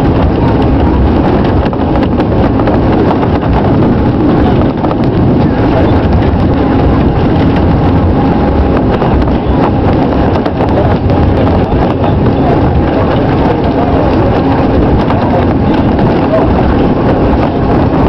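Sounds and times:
train clicking and clattering: 0:00.0 - 0:18.0
train rumbling: 0:00.0 - 0:18.0.

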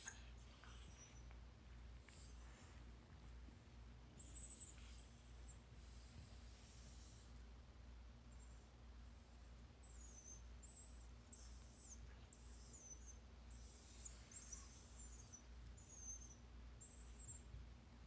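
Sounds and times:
dog whining in high squeaks: 0:09.8 - 0:17.5.

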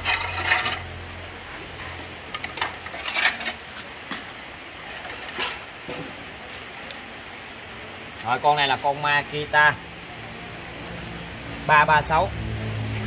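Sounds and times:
metal tools clicking and knocking: 0:00.0 - 0:00.9, 0:02.3 - 0:03.6.

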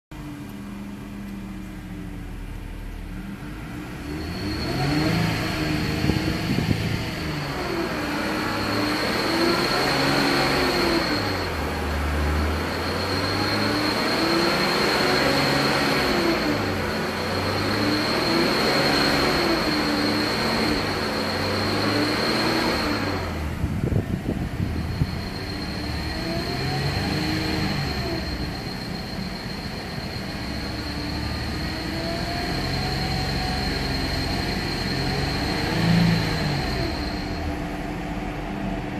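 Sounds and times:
car engine revving: 0:00.2 - 0:38.9
high-pitched whine: 0:00.2 - 0:38.9.

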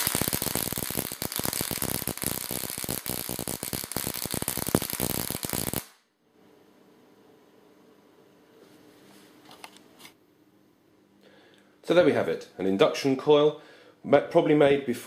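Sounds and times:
electric sparks crackling: 0:00.0 - 0:06.1.

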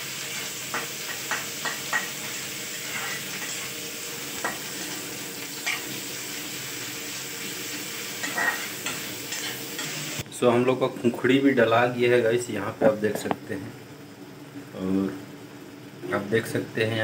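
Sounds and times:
onions sizzling in hot oil: 0:00.0 - 0:10.2
metal spatula scraping pan: 0:00.2 - 0:03.8, 0:08.2 - 0:10.0.

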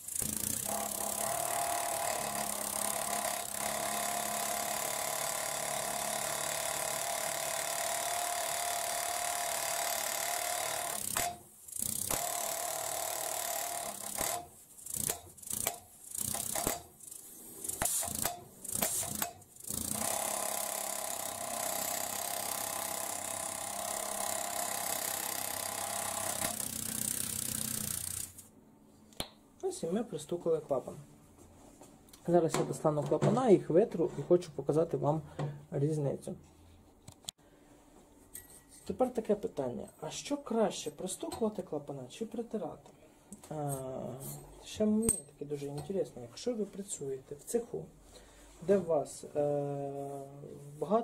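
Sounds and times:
valve lapping machine hammering: 0:00.0 - 0:16.9, 0:17.7 - 0:28.3.

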